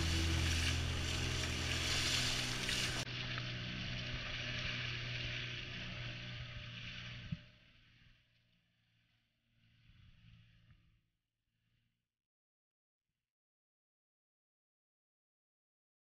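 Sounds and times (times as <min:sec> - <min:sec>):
water rushing along hull: 0:00.0 - 0:08.2
low boat engine hum: 0:00.0 - 0:11.0.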